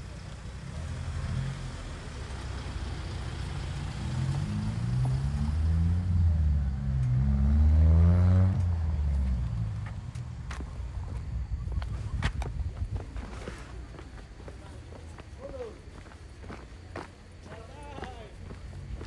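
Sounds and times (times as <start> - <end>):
car engine accelerating: 0.0 - 12.0
wind on microphone: 11.2 - 13.4.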